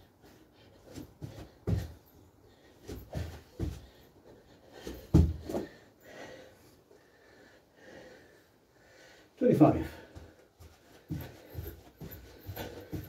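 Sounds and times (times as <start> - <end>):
feet thudding on floor: 0.9 - 2.1, 2.8 - 4.0, 4.7 - 5.8, 10.2 - 13.0.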